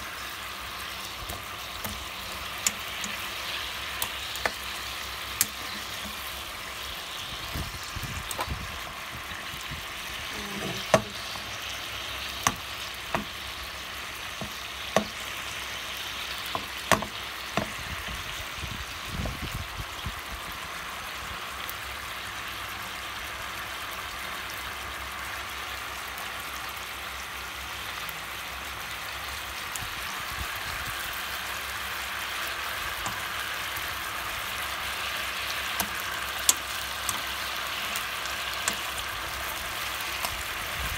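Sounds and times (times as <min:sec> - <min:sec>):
meat sizzling in a pan: 0:00.0 - 0:40.9
tongs clicking on pan: 0:01.0 - 0:06.4, 0:10.6 - 0:11.5, 0:12.4 - 0:13.4, 0:14.4 - 0:15.2, 0:33.0 - 0:33.3, 0:35.4 - 0:40.4.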